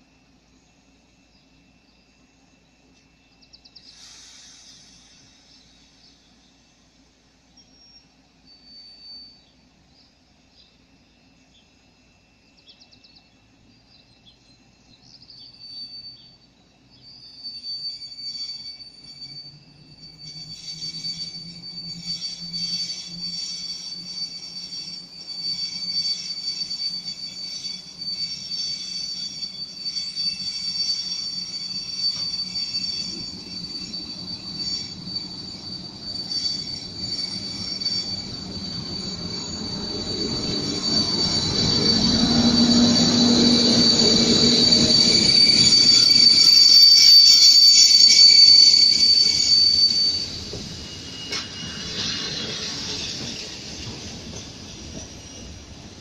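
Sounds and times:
train brakes squealing: 0.0s - 56.0s
locomotive hum: 14.6s - 56.0s.

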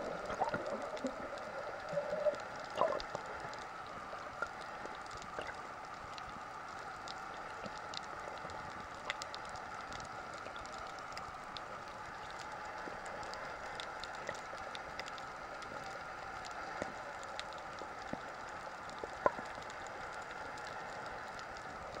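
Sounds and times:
underwater hiss: 0.0s - 6.4s
sharp clicks and crackles: 0.0s - 22.0s.

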